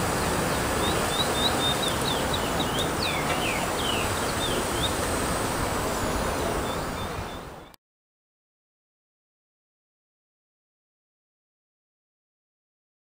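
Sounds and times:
steady rushing noise: 0.0s - 7.8s
small bird chirping: 0.5s - 5.0s.

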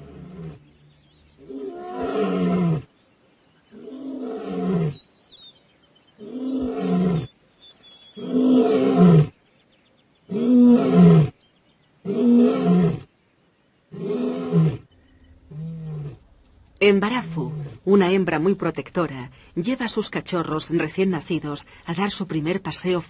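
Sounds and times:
lion roaring: 0.0s - 0.7s, 1.4s - 2.9s, 13.9s - 16.3s.

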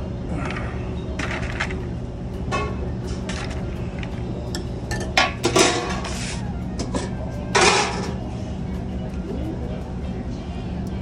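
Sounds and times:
steady low hum: 0.0s - 11.0s
metal spoon clinking on pans: 4.5s - 6.0s.

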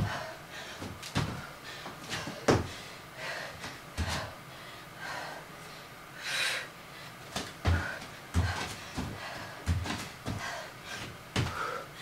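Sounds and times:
feet thumping on exercise mat: 0.0s - 2.8s, 3.6s - 4.3s, 7.3s - 11.8s
hard breathing: 0.0s - 12.0s.

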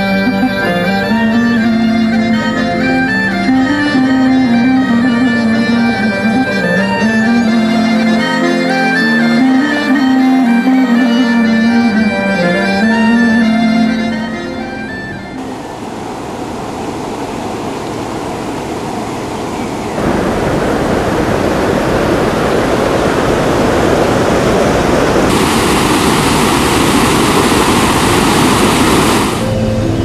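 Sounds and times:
rushing water: 15.4s - 30.0s.

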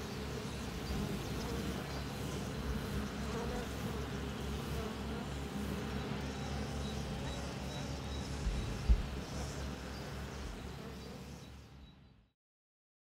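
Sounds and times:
bees buzzing: 0.0s - 11.8s.

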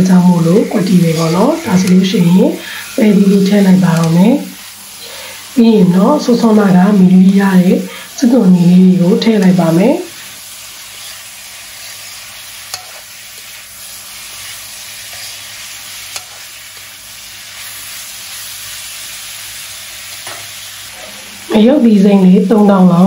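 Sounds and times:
food sizzling in hot oil: 0.0s - 23.0s
metal spatula clicking on pan: 12.7s - 13.0s, 16.1s - 16.4s.

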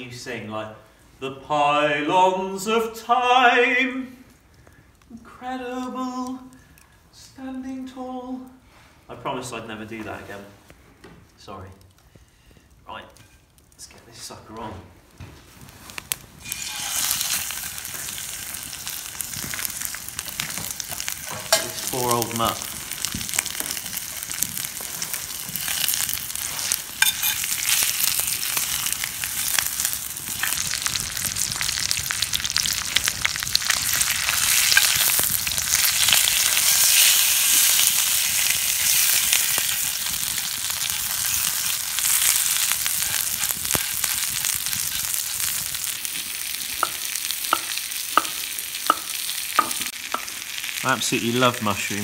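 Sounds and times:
meat sizzling in a frying pan: 15.8s - 52.0s.

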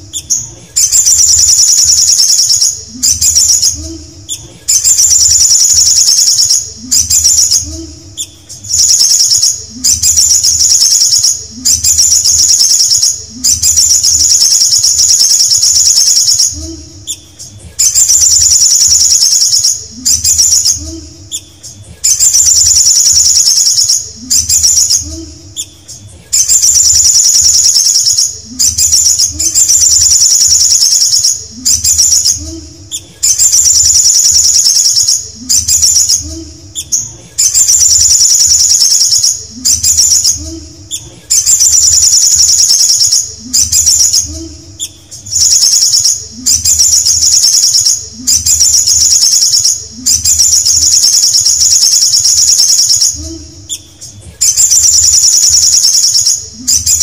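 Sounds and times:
bird trilling song: 0.0s - 57.0s.

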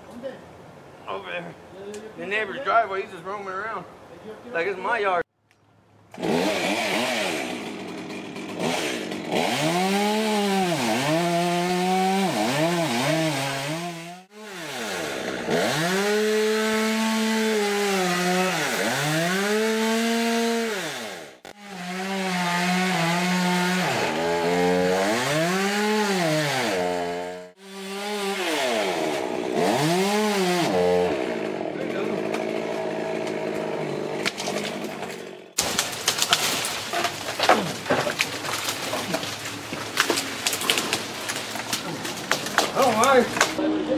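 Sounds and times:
chainsaw revving: 6.2s - 36.4s.

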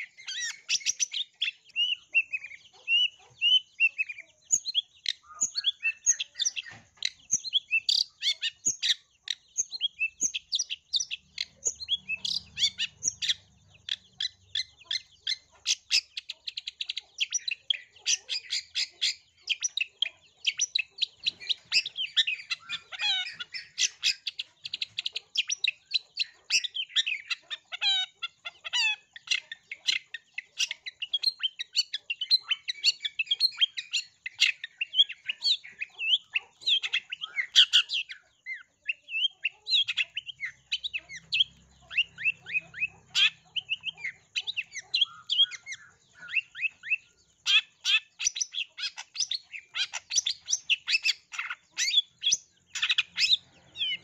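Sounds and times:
bird song of chirps and trills: 0.0s - 54.0s.

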